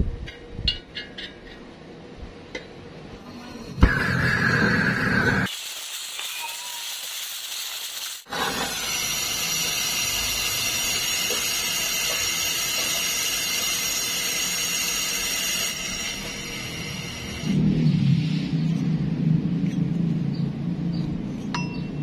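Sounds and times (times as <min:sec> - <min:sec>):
pressure hissing from pipe: 0:03.6 - 0:18.5.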